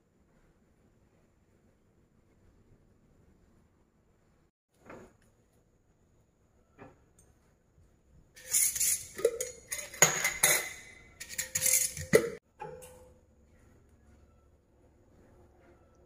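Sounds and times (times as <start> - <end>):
screw lids scraping on glass jars: 8.4 - 12.4
glass and metal clinking: 8.4 - 13.2.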